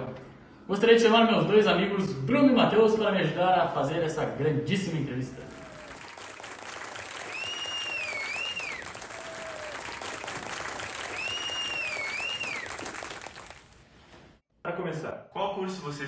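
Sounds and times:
audience applause: 5.4 - 13.8
two-note whistle: 7.3 - 9.7, 11.1 - 12.6.

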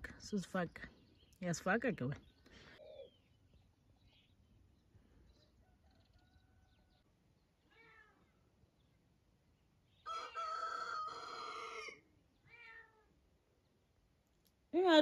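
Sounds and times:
rooster crowing: 5.6 - 7.0, 10.0 - 12.0.

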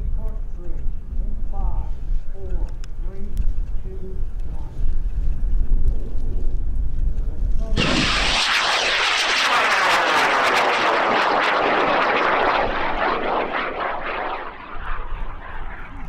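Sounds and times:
rocket motor roaring: 7.8 - 16.0.

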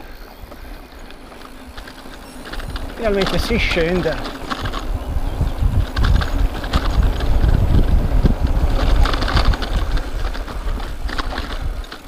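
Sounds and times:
bike rattling over bumps: 0.0 - 12.0
bike tyres rolling on dirt: 0.0 - 12.0
wind rumble on microphone: 0.4 - 12.0.

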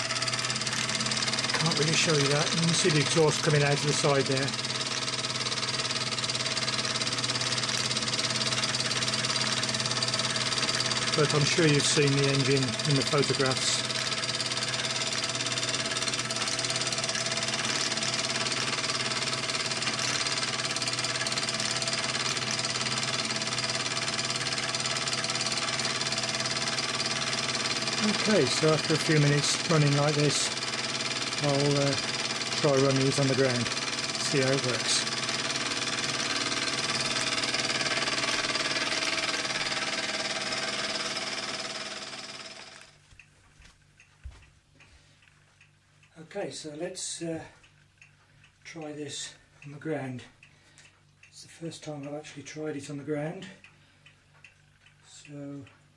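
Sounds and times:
model steam engine running: 0.0 - 43.0.

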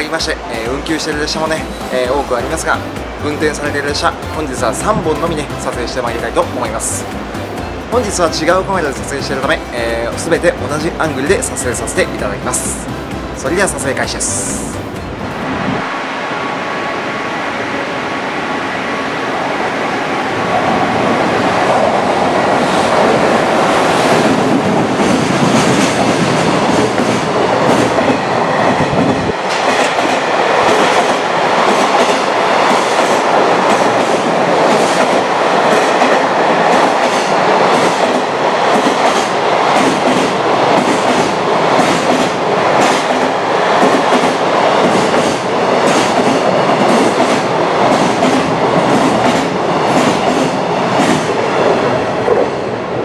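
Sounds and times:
train wheels clacking over rail joints: 29.0 - 51.3.

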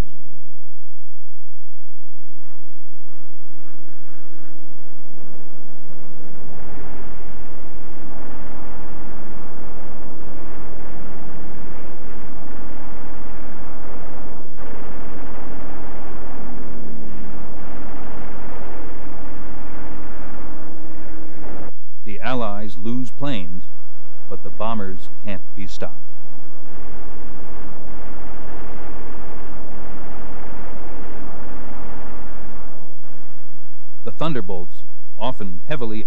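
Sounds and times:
explosions: 1.6 - 36.0
gunfire: 3.7 - 34.6.

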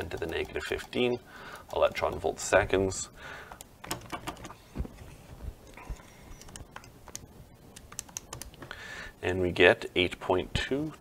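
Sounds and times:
calculator keys clicking: 0.0 - 1.0, 1.6 - 2.3, 7.8 - 8.6.

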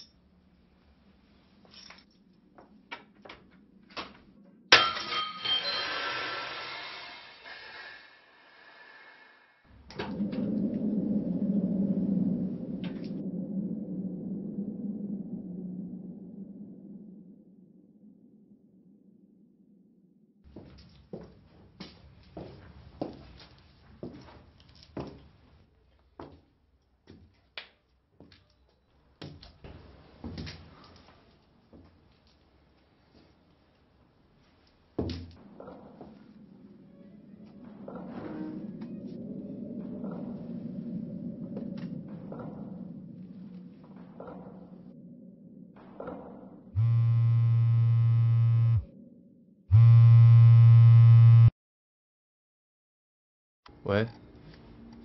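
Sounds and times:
phone vibrating in pocket: 46.8 - 48.9, 49.7 - 51.5.

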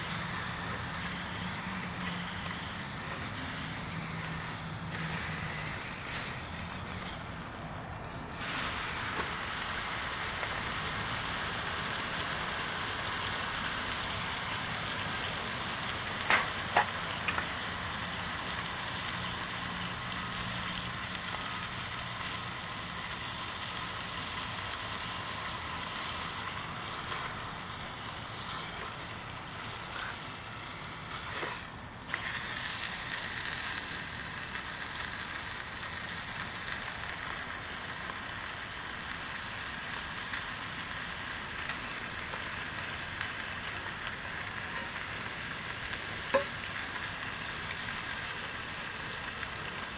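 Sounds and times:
food sizzling in a pan: 0.0 - 49.9.

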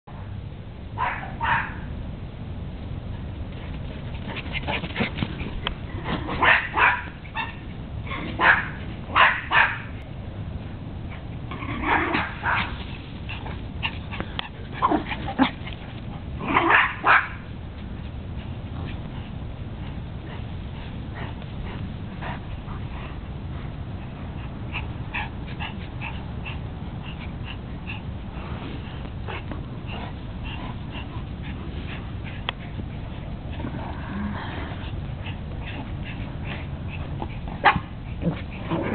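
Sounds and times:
dogs barking: 1.0 - 1.9, 6.2 - 10.0, 11.8 - 12.8, 16.4 - 17.5, 35.6 - 38.9.

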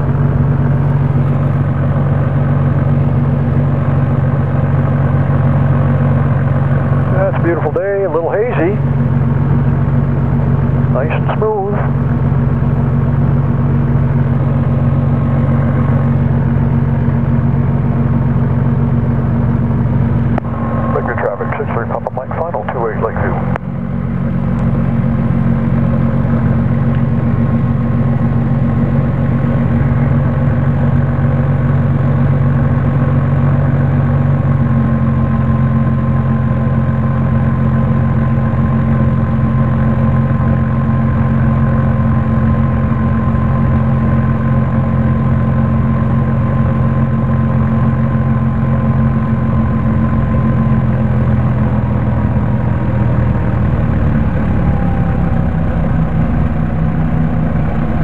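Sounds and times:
aircraft engine running: 0.0 - 58.0.

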